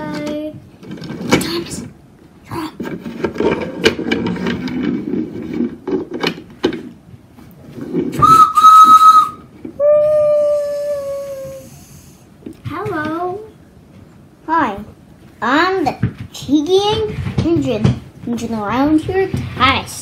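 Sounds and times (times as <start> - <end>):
wooden toy train clacking: 2.6 - 6.9, 7.9 - 9.4
train whistle sound effect: 8.2 - 9.4.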